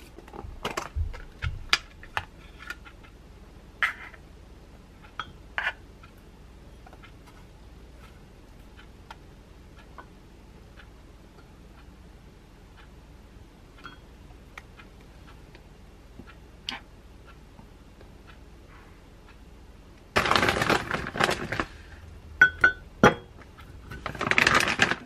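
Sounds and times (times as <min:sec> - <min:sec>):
plastic bag crinkling: 0:20.2 - 0:22.0, 0:23.9 - 0:25.0.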